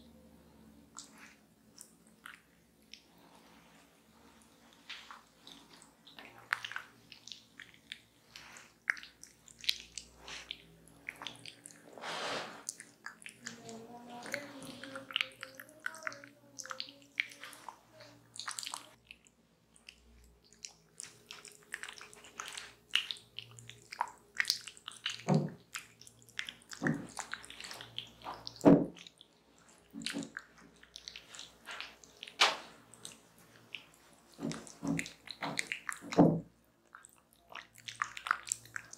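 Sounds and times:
wet squelches of fruit pulp on skin: 0:00.9 - 0:11.9, 0:19.8 - 0:38.9.

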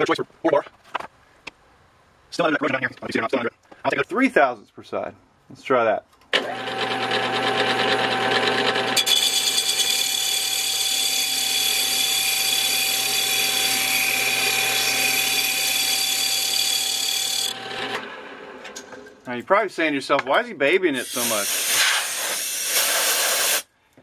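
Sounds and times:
lathe motor hum: 0:06.4 - 0:18.5
high hissing scrape of cutting tool: 0:21.0 - 0:23.7.

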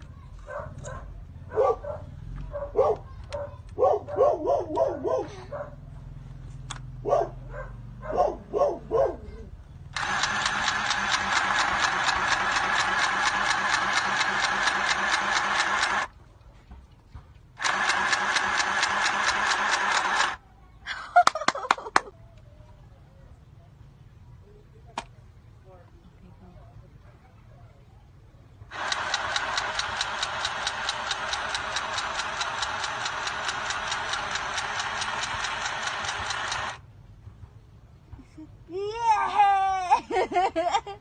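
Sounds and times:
dog yapping: 0:00.4 - 0:05.8, 0:07.0 - 0:09.6
sewing machine stitching: 0:09.9 - 0:16.1, 0:17.6 - 0:20.4, 0:28.7 - 0:36.8.

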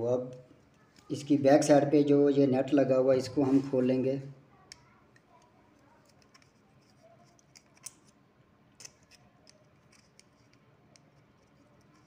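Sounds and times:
screwdriver clicks and scrapes: 0:04.7 - 0:08.2, 0:08.8 - 0:12.0.

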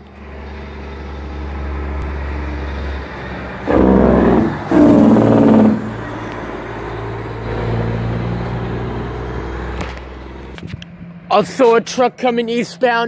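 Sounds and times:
truck engine drone: 0:00.0 - 0:13.0
loud bursts from passing truck: 0:00.2 - 0:10.5.

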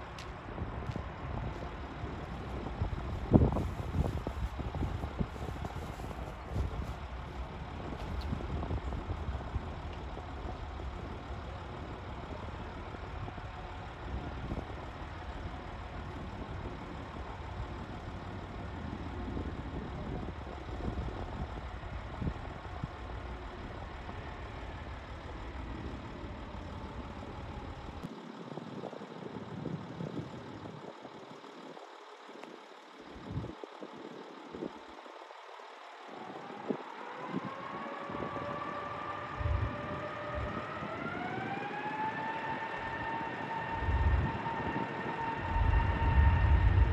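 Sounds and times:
rising whine: 0:00.0 - 0:17.9, 0:35.5 - 0:46.9
distant jet engine roar: 0:36.1 - 0:46.9.

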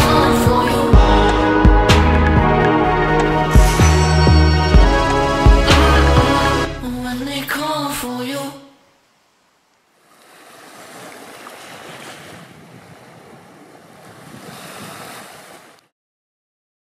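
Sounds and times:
sea waves washing: 0:09.0 - 0:15.9.

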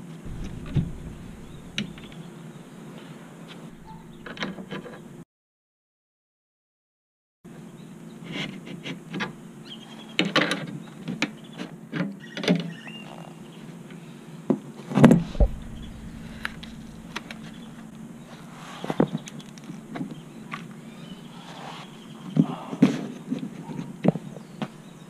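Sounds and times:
steady low hum: 0:00.2 - 0:02.9, 0:03.6 - 0:05.2, 0:15.2 - 0:22.1
knocks: 0:00.3 - 0:02.3, 0:15.2 - 0:18.0
heavy thump: 0:00.3 - 0:02.4, 0:03.7 - 0:04.6, 0:15.2 - 0:18.6.

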